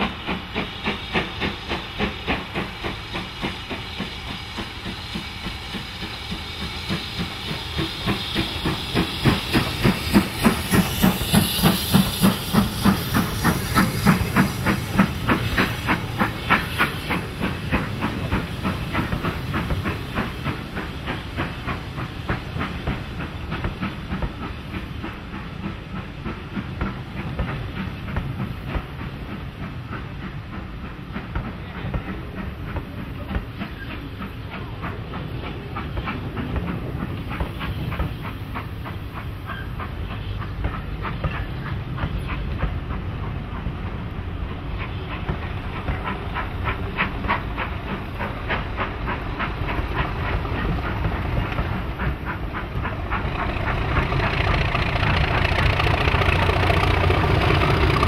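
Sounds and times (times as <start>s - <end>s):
steam hiss: 0.0s - 58.0s
steam locomotive exhaust chuffs: 0.0s - 58.0s
carriages rolling past: 52.4s - 58.0s.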